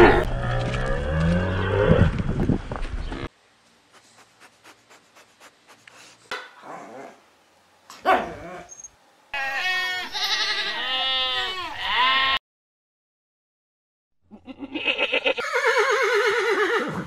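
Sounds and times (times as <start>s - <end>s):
dog bark: 8.0s - 8.5s
goats bleating: 9.4s - 12.4s, 14.4s - 15.7s.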